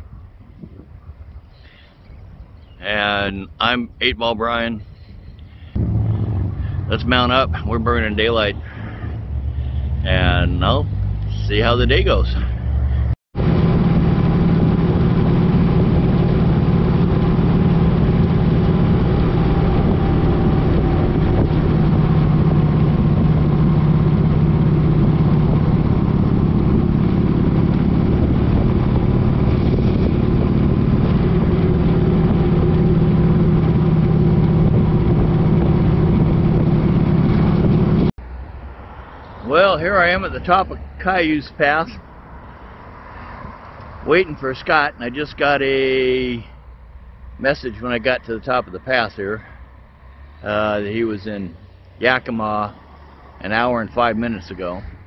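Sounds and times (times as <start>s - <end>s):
wind noise: 0.0s - 2.7s, 5.1s - 38.1s
motorcycle engine cruising: 5.4s - 44.2s.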